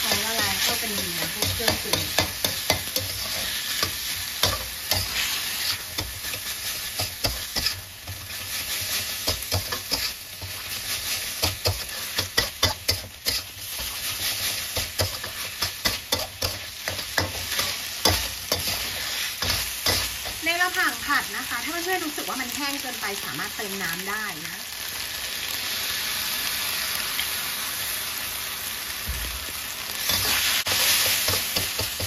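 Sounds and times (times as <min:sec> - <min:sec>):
spatula scraping pan: 0:00.0 - 0:20.5
meat sizzling in a wok: 0:00.0 - 0:32.0.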